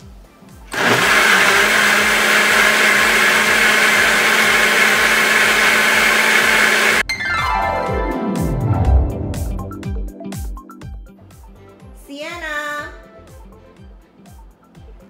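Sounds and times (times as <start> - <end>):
blender running: 0.7 - 7.0.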